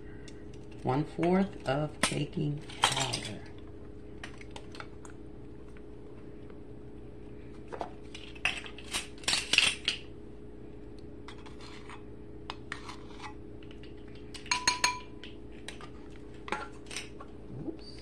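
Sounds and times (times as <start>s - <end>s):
utensils clinking against bowl: 14.4s - 15.3s.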